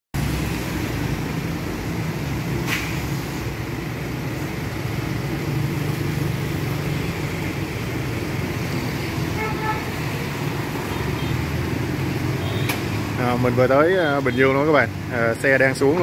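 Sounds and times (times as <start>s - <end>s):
truck engine rumbling: 0.2s - 16.0s.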